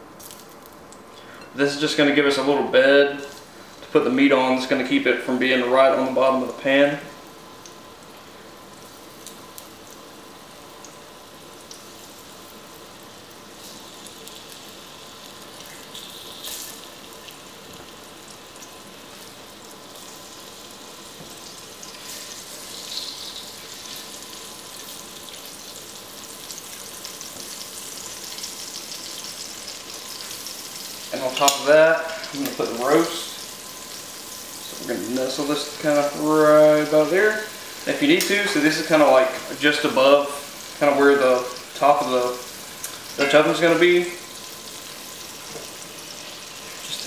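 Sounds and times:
oil sizzling in a pot: 0.0 - 47.0.

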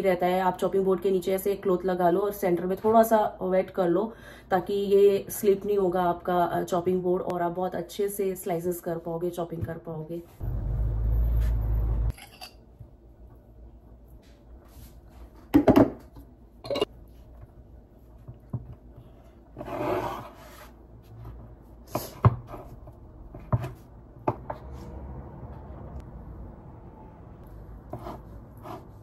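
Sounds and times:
knife scraping board: 19.6 - 20.8, 27.9 - 29.0.

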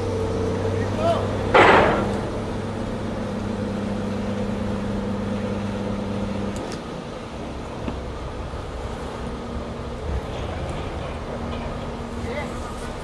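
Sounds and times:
excavator engine humming: 0.0 - 13.0.

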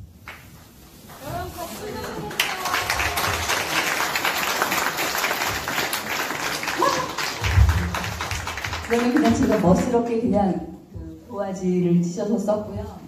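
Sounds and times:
audience applauding: 1.8 - 9.9.

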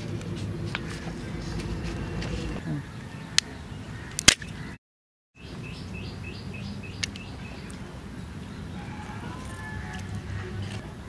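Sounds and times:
bird chirping: 5.4 - 9.1.

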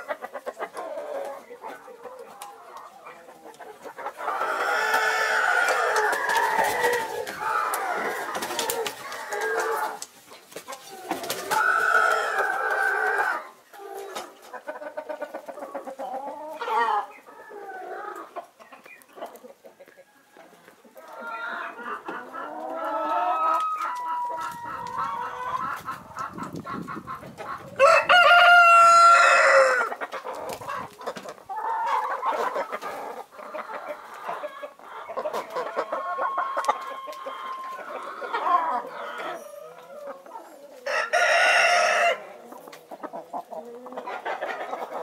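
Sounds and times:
chickens clucking: 0.0 - 45.0
rooster crowing: 27.8 - 29.9, 40.9 - 42.2.

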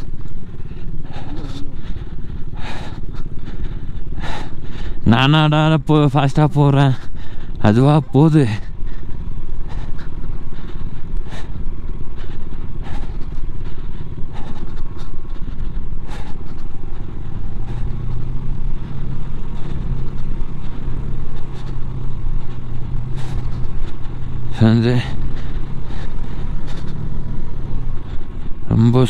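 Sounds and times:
low engine hum: 0.0 - 29.0
motorcycle on rough track: 7.5 - 29.0.

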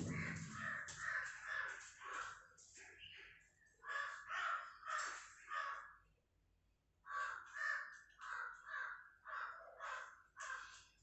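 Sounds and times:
crow cawing: 0.0 - 2.5, 3.8 - 6.1, 7.0 - 11.0.

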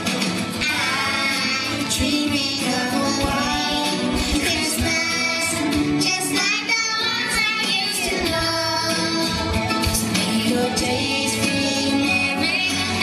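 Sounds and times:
backing music: 0.0 - 13.0
children singing into microphones: 0.6 - 13.0.

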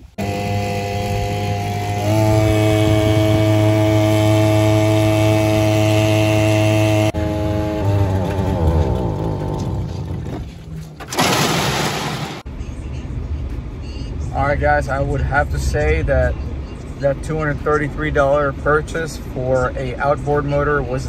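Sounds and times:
outboard motor running: 0.0 - 10.9
engine with wavering pitch: 0.0 - 11.0.

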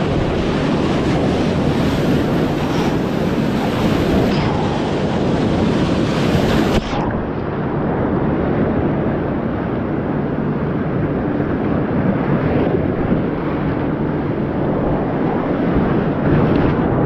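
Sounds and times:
river rapids rushing and splashing: 0.0 - 7.3.

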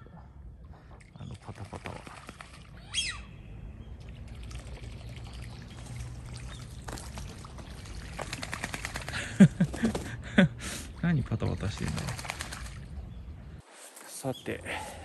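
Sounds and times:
ducks flapping and splashing: 1.3 - 2.8, 4.1 - 10.3, 11.5 - 13.0.

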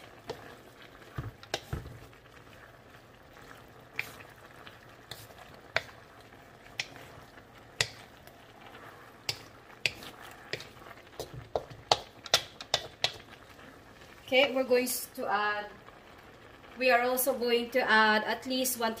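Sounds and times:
spatula stirring in a wok: 0.0 - 14.0
faint sizzle of sauce: 0.0 - 19.0
spatula tapping metal pan: 1.2 - 2.0, 5.0 - 6.0, 6.7 - 7.0, 7.7 - 8.1, 9.2 - 13.2.

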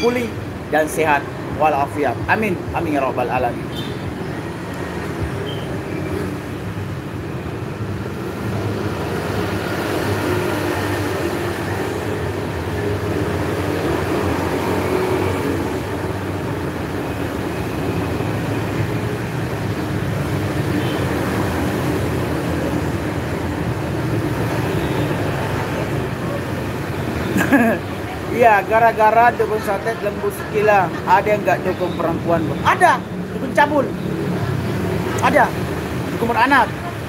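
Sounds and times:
road traffic rumble: 0.0 - 37.0.

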